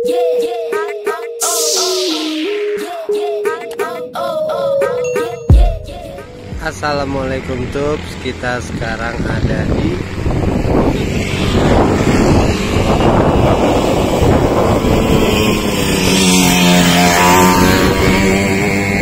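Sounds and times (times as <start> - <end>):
vehicle engine running: 6.4 - 19.0
wind noise on microphone: 8.6 - 19.0.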